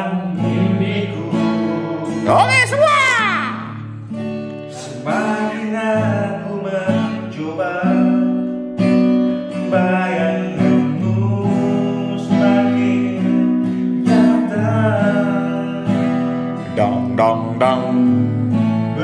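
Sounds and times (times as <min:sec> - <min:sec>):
men singing: 0:00.0 - 0:02.9, 0:04.7 - 0:08.3, 0:09.6 - 0:18.2
acoustic guitar strumming: 0:00.0 - 0:19.0.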